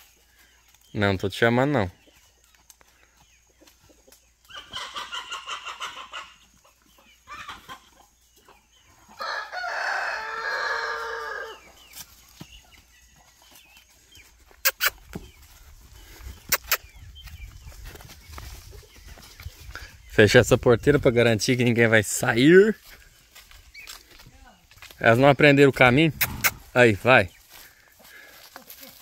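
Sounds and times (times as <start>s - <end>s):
rooster clucking and crowing: 4.5s - 6.6s, 8.9s - 11.8s.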